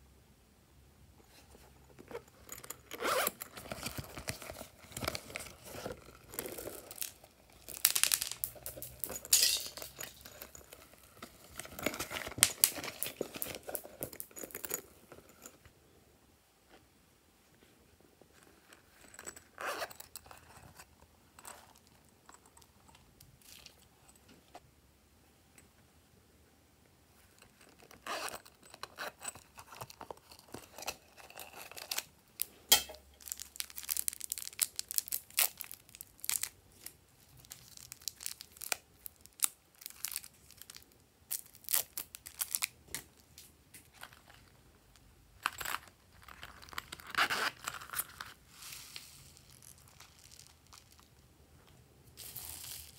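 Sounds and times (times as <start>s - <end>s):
plastic packaging crinkling: 2.6s - 14.8s, 33.2s - 43.3s, 45.6s - 51.2s.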